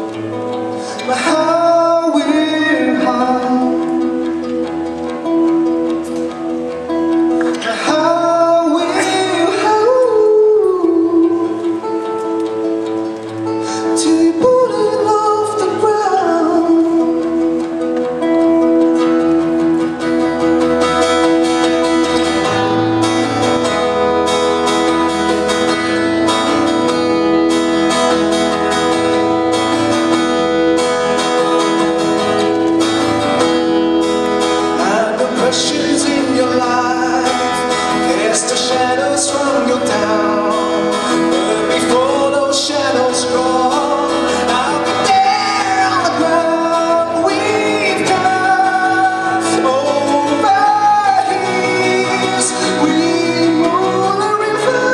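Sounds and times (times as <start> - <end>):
acoustic guitar playing: 0.0 - 54.9
wordless singing: 0.8 - 5.0, 34.6 - 54.9.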